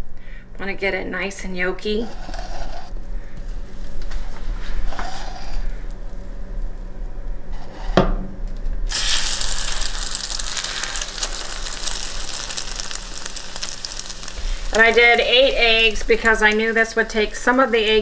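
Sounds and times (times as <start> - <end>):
bread sizzling in hot grease: 8.9 - 18.0.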